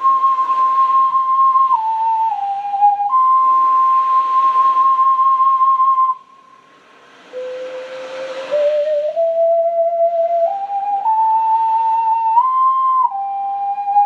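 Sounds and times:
ocarina playing slow melody: 0.0 - 14.0.

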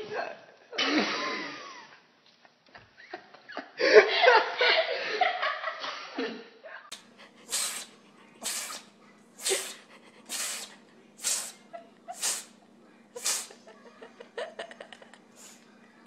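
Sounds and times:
cat hissing huffs: 7.3 - 12.6, 13.2 - 13.6.

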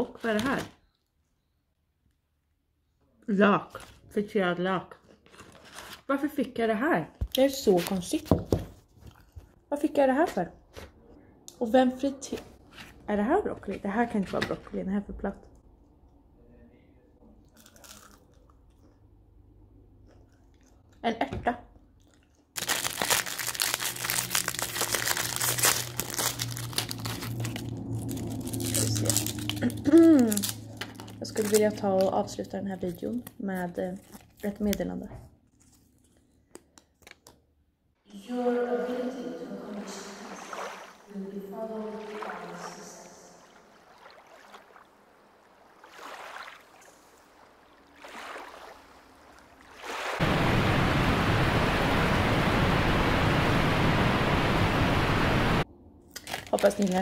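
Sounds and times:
plastic wrapper crinkling and tearing: 5.0 - 6.1, 17.5 - 18.8, 22.0 - 37.4, 56.1 - 57.0
loud steady hiss: 50.2 - 55.6.

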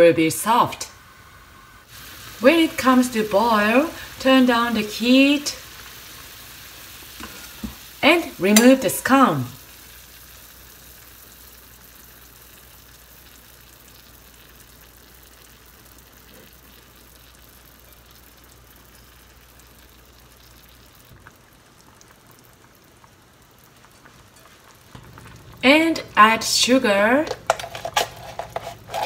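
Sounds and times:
liquid bubbling in a frying pan: 1.9 - 29.0
low hum: 24.6 - 29.0.

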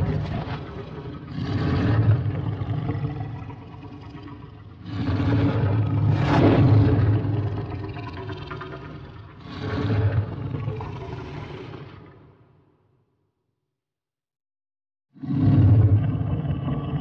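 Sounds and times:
deep monster roars: 0.0 - 12.4, 15.2 - 17.0.

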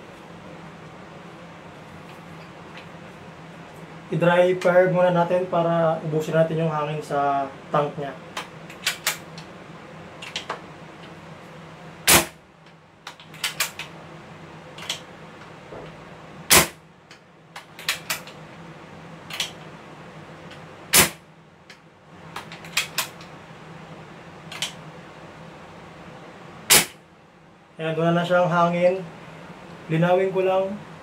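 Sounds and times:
air rifle pops: 20.9 - 21.2, 26.7 - 27.0.

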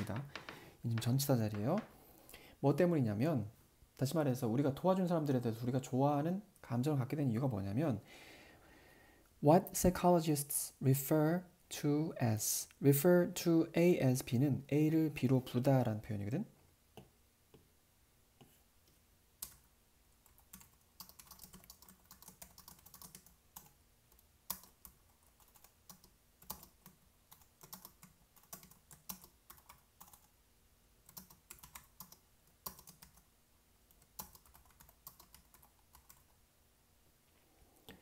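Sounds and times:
keyboard typing: 19.4 - 30.3, 31.1 - 33.3, 33.9 - 36.4.

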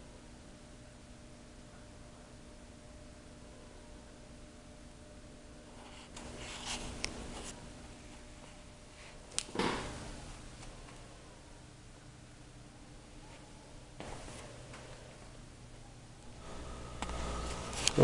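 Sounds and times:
faint steady hum: 0.0 - 18.0
rustling and handling noises: 5.7 - 9.5.

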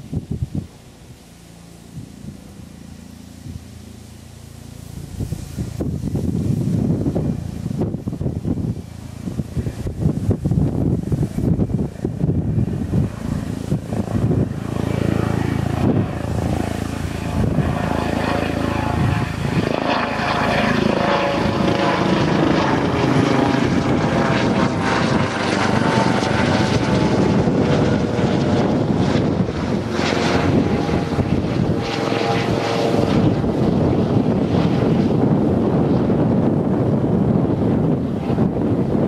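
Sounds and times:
jet engines roaring: 0.0 - 39.0.

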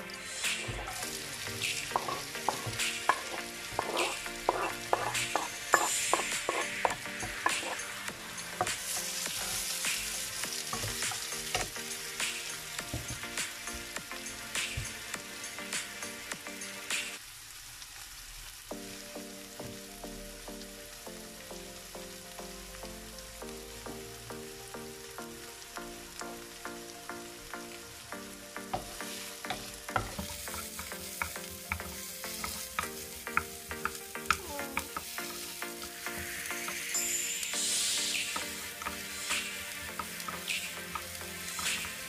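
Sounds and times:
onions sizzling in oil: 0.0 - 42.0
wooden spoon scraping pan: 0.6 - 9.8, 28.8 - 36.8.

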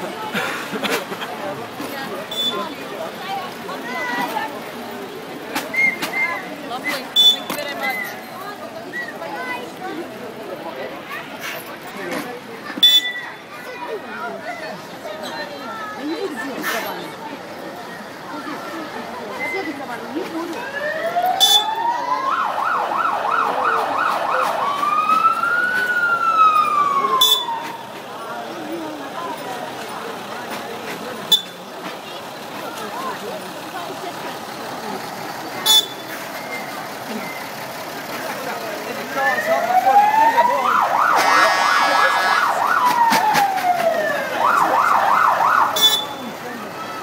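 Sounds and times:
electronic siren yelp and wail: 20.6 - 27.8, 39.3 - 45.9
sharp siren blip: 26.5 - 27.8
electronic siren yelping and wailing: 39.4 - 45.9.

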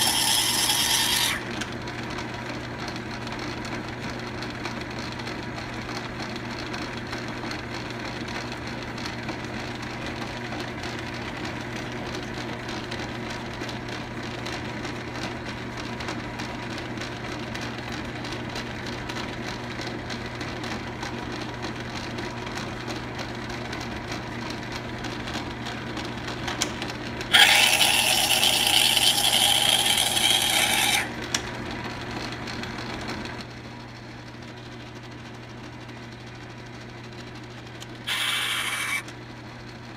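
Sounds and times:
metal lathe humming: 0.0 - 1.5, 27.3 - 31.2, 38.1 - 39.0
tool scraping metal: 0.0 - 1.5, 27.3 - 31.1, 38.1 - 39.0
harsh high-pitched squeal: 27.3 - 31.1, 38.1 - 39.0.

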